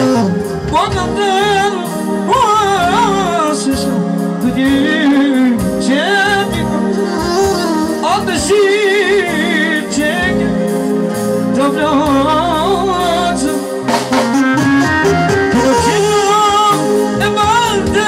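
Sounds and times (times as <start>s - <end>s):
saxophone: 0.0s - 2.2s, 4.6s - 10.1s, 13.9s - 17.2s
man singing with vibrato: 0.0s - 14.0s, 15.2s - 18.0s
drums: 0.0s - 18.0s
electric keyboard: 0.0s - 18.0s.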